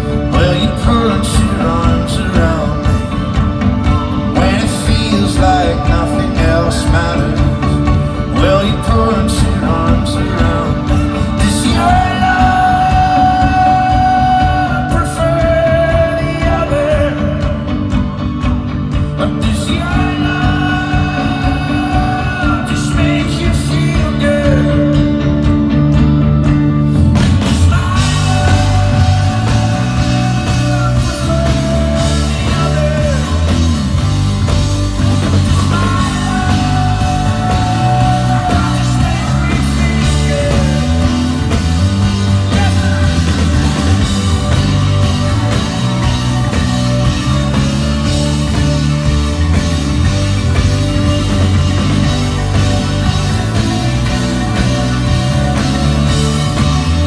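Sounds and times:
man singing: 0:00.0 - 0:25.8, 0:26.9 - 0:49.3, 0:50.6 - 0:57.0
folk-rock band playing: 0:00.0 - 0:57.0.

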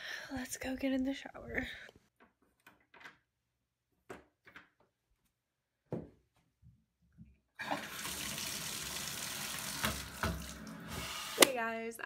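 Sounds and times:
shower water running: 0:07.6 - 0:11.5.

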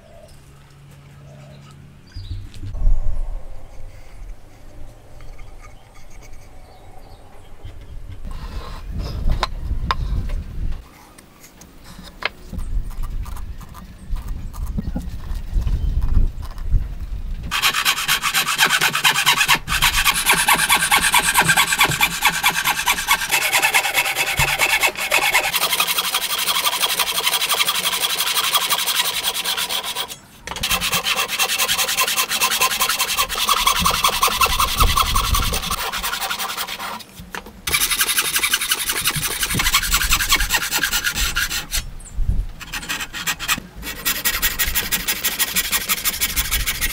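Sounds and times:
hand saw cutting wood: 0:17.5 - 0:41.9, 0:42.6 - 0:46.9.

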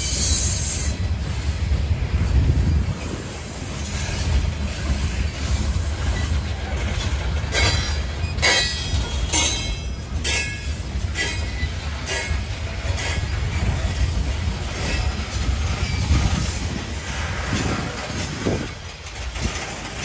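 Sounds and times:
metallic wheel squeal: 0:00.0 - 0:01.1, 0:07.5 - 0:12.4
train wheels rumbling on rail: 0:00.0 - 0:20.0.

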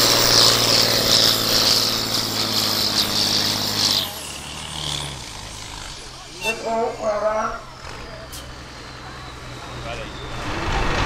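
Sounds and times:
tractor engine at high revs: 0:00.0 - 0:11.0
high whine sliding down: 0:06.0 - 0:11.0.

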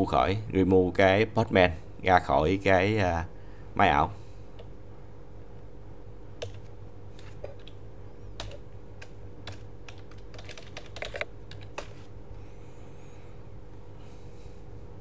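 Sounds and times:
steady low hum: 0:00.0 - 0:15.0
keyboard keystrokes: 0:06.4 - 0:07.8, 0:08.4 - 0:12.0.

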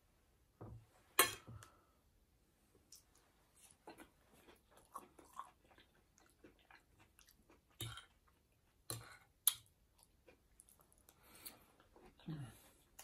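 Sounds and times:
person chewing food: 0:02.8 - 0:13.0.

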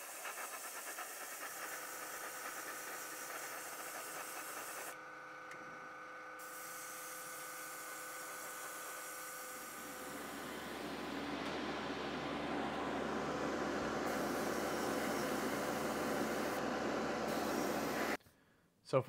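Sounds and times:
airbrush spraying hiss: 0:00.0 - 0:05.0
machine whine: 0:00.0 - 0:18.2.

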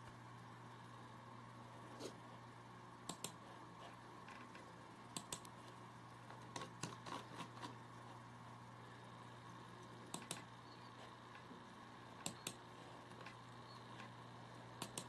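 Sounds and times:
low steady hum: 0:00.0 - 0:15.0
laptop keyboard clicks: 0:10.1 - 0:10.5, 0:14.8 - 0:15.0.

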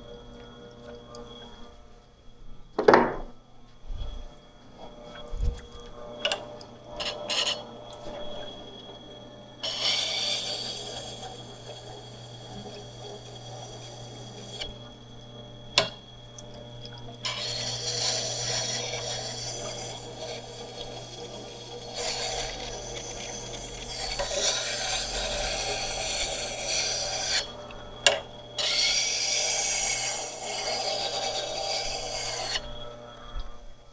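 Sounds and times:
grinder motor humming: 0:04.4 - 0:33.8
chisel grinding on wet stone: 0:17.3 - 0:27.5, 0:28.6 - 0:32.6.

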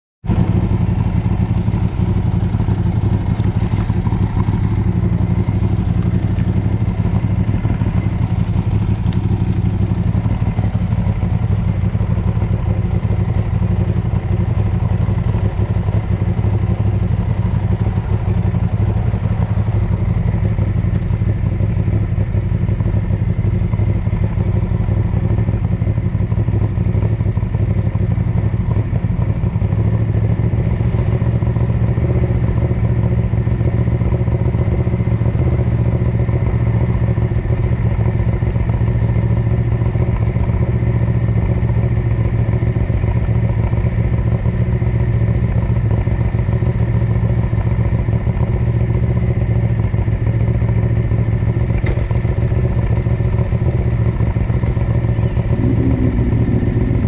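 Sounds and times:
motorcycle engine running: 0:00.2 - 0:57.0.

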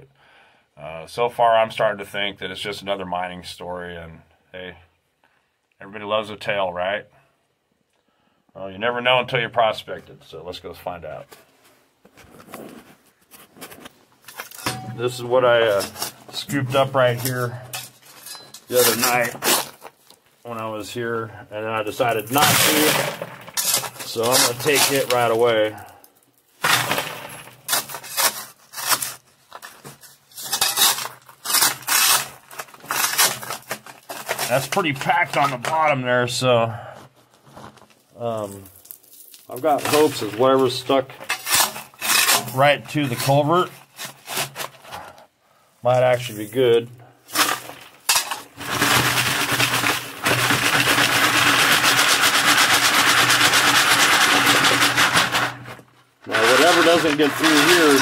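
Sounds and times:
shovel scraping into gravel: 0:14.4 - 0:19.9, 0:22.0 - 0:25.9, 0:26.6 - 0:35.6, 0:39.0 - 0:44.8, 0:47.3 - 0:55.7, 0:56.3 - 0:58.0
stones rattling onto a screen: 0:22.0 - 0:35.8, 0:37.8 - 0:40.5, 0:47.3 - 0:58.0.

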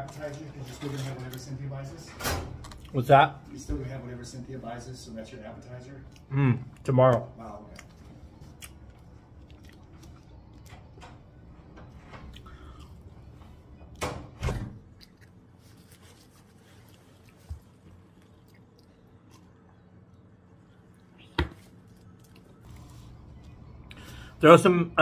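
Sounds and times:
man chewing fries: 0:02.6 - 0:03.0, 0:06.0 - 0:11.4, 0:12.3 - 0:14.0, 0:14.8 - 0:24.3.

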